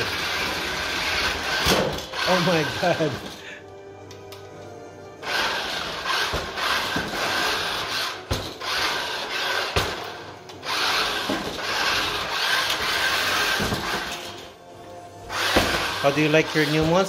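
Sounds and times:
toy truck motor whining: 0.0 - 4.4, 5.1 - 17.0.

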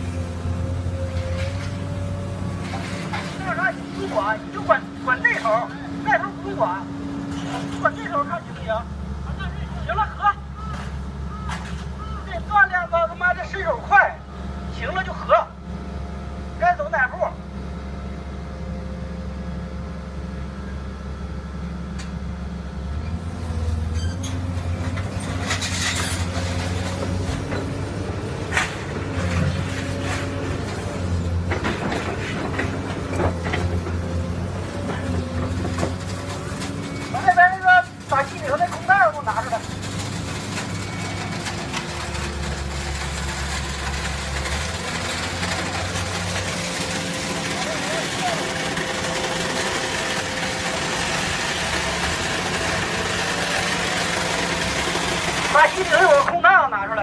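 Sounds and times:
hydraulic power unit humming: 0.0 - 56.7
metal clattering and scraping: 1.1 - 4.4, 23.9 - 56.3.

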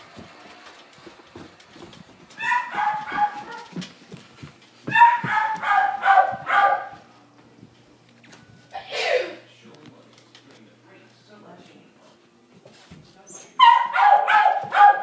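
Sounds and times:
knocks and footfalls: 0.0 - 8.4, 14.5 - 15.0
dog barking: 2.4 - 3.8, 4.9 - 7.0, 13.6 - 15.0.

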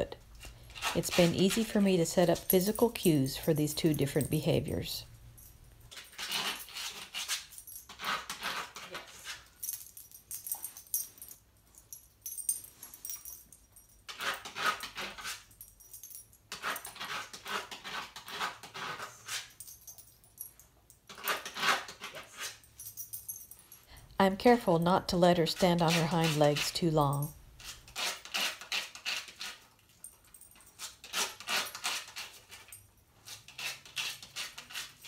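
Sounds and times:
dog claws scratching board: 0.6 - 1.8, 5.9 - 9.5, 14.1 - 15.5, 16.5 - 19.6, 21.1 - 22.6, 25.4 - 26.9, 27.6 - 29.8, 30.8 - 35.0.

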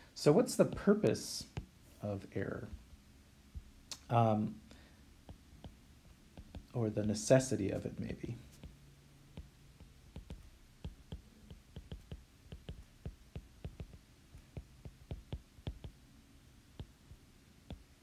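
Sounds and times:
stylus tapping on glass screen: 5.3 - 7.2, 8.5 - 16.0, 16.8 - 18.0.

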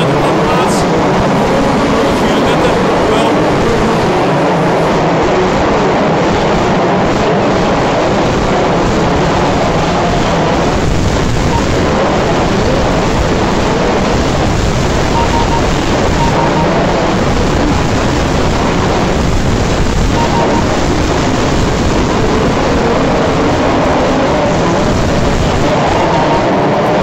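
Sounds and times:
short beeps: 15.1 - 17.0, 20.1 - 20.8.

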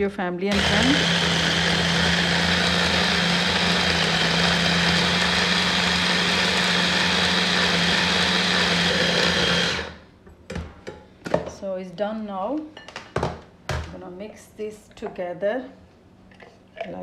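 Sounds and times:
hand blender motor running: 0.5 - 10.0.

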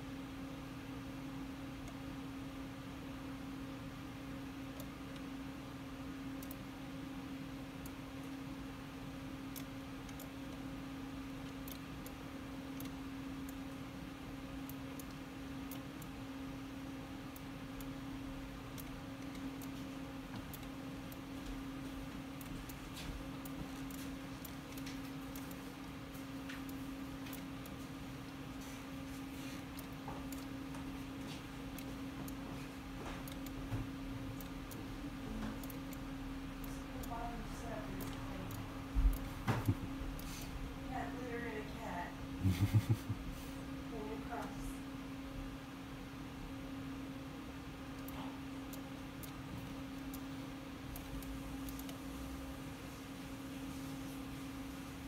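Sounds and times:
steady low hum: 0.0 - 55.0
faint irregular clicks: 0.1 - 54.9
computer mouse clicks: 6.3 - 6.7, 9.5 - 10.7, 22.4 - 30.6, 33.2 - 34.8, 50.9 - 52.1
low hum: 42.2 - 47.0.

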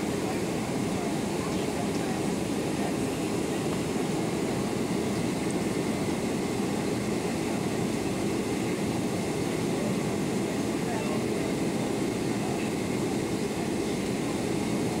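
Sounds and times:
airliner cabin engine rumble: 0.0 - 15.0.

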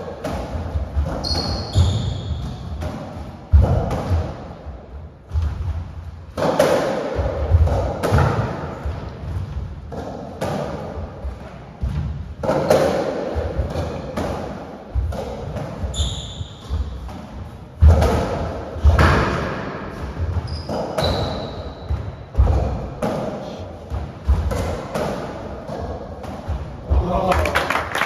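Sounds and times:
shoe squeaks: 1.1 - 2.8, 15.9 - 17.0, 20.4 - 22.0.

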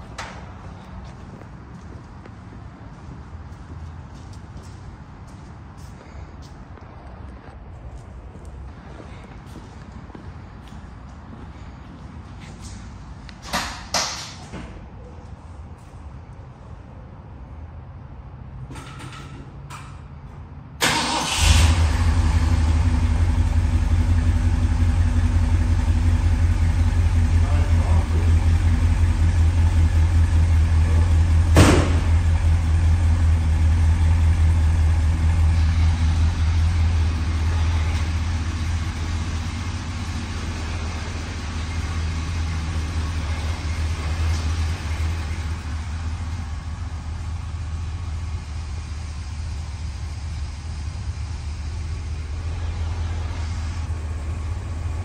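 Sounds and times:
car engine idling: 20.8 - 55.0
sharp knock: 31.5 - 32.1.

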